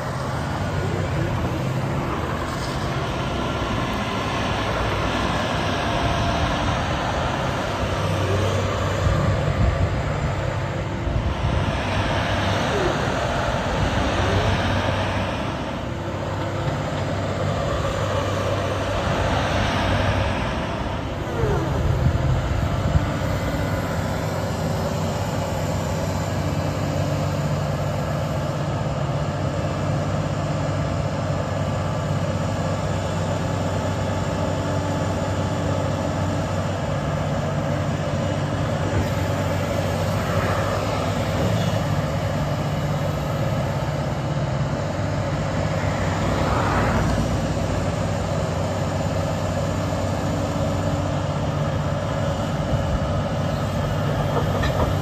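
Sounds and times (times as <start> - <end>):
rushing hydraulic noise: 0.0 - 28.8, 37.4 - 55.0
excavator diesel engine running: 0.0 - 55.0.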